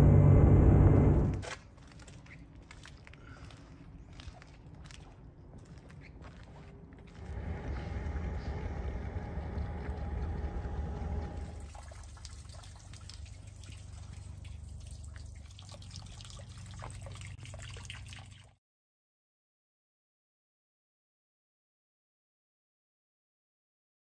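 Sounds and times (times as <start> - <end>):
low steady rumble: 0.0 - 1.4, 7.0 - 17.2
water trickling and lapping: 1.4 - 18.6.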